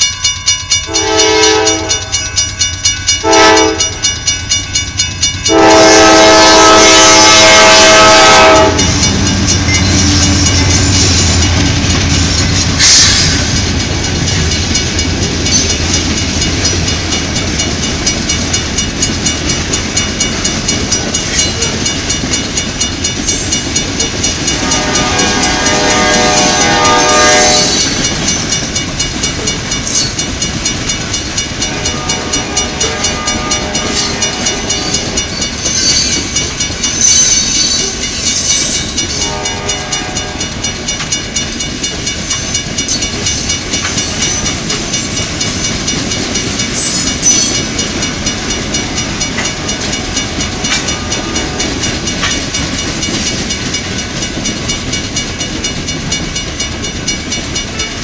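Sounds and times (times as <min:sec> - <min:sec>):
crossing bell ringing: 0:00.0 - 0:58.0
train horn note: 0:00.9 - 0:02.2, 0:03.2 - 0:04.0, 0:05.5 - 0:09.2, 0:24.6 - 0:27.8, 0:31.7 - 0:34.6, 0:39.1 - 0:40.4
train wheels clattering on rail joints: 0:02.8 - 0:58.0
loud bangs of rail cars: 0:05.5 - 0:58.0.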